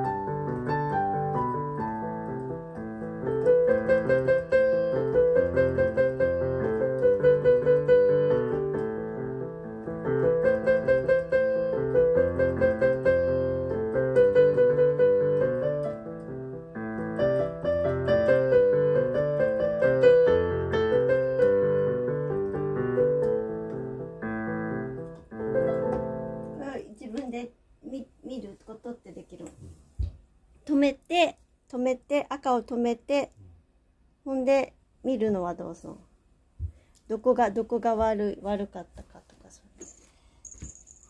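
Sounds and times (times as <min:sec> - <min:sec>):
portable keyboard melody: 0:00.0 - 0:26.6.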